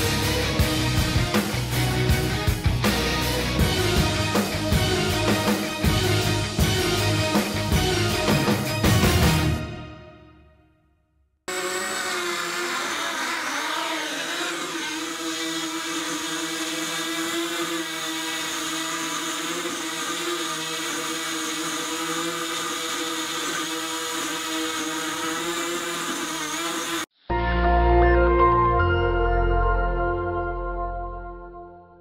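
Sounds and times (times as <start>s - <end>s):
small electric motor whirring: 11.5s - 27.1s.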